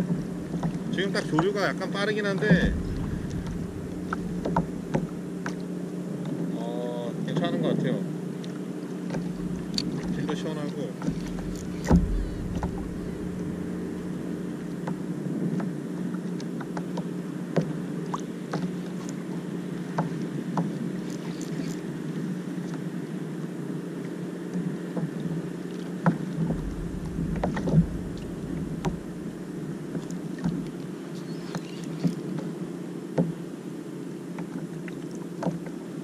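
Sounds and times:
steady low hum: 0.0s - 6.2s, 9.2s - 16.0s, 26.3s - 32.0s
water around hull: 0.0s - 36.0s
thumps on kayak: 2.4s - 5.2s, 11.0s - 14.3s, 26.1s - 29.2s.

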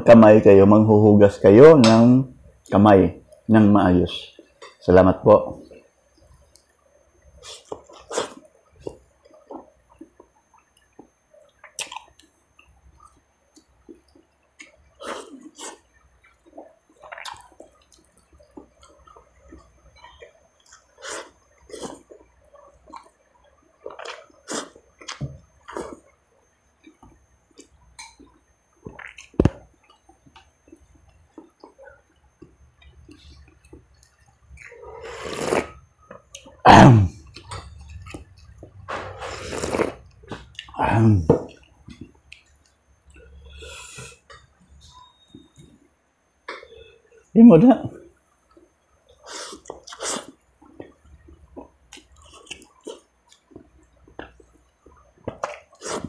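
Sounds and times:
wet chewing and lip smacks: 7.5s - 26.0s, 40.1s - 40.8s, 48.5s - 56.0s.

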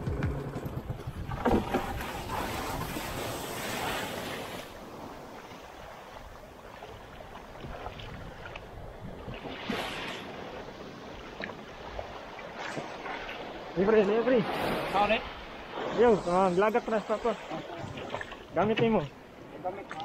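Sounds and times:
wind on microphone: 0.0s - 5.4s
surf splashing against wooden hull: 0.0s - 20.0s.

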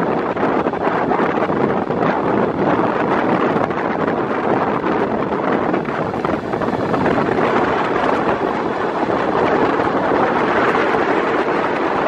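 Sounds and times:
wind buffeting microphone: 0.0s - 12.0s
train running on rails: 5.7s - 11.3s.

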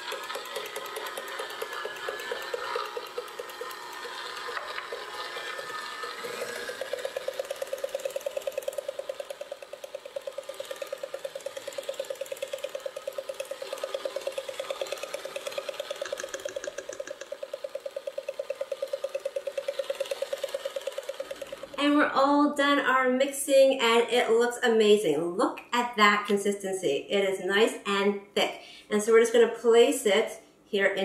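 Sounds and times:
electric stand mixer running: 0.0s - 21.8s.

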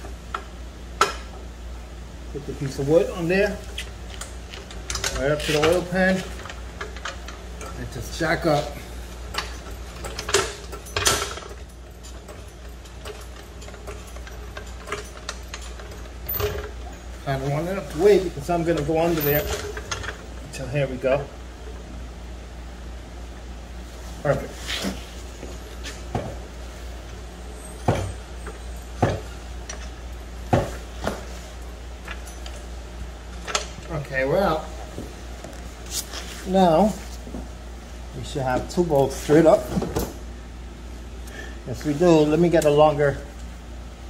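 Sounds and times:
floor jack clunking: 27.8s - 29.9s, 30.5s - 31.4s.

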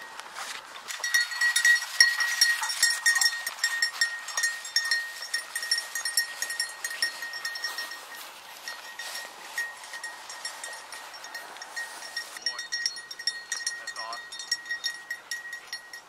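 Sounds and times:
dog running through dry grass: 0.0s - 12.4s
collar bell jingling: 0.9s - 16.0s.

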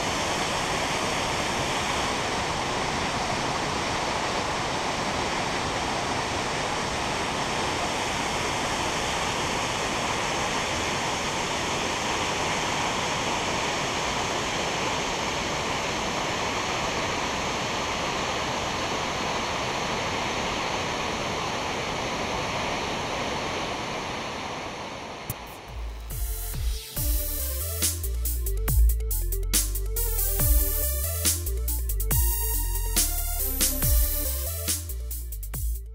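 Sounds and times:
water rushing: 0.0s - 27.0s.

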